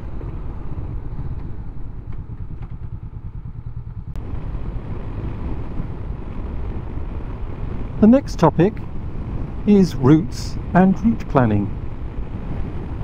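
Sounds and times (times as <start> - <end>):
motorcycle engine: 0.0 - 8.0
wind rumble: 0.0 - 13.0.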